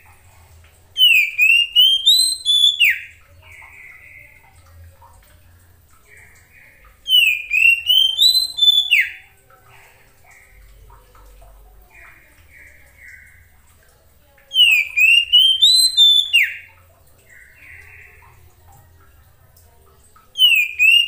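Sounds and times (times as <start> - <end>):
bird whistled song phrases: 1.0 - 4.3, 7.1 - 9.3, 14.5 - 16.7, 20.4 - 21.0.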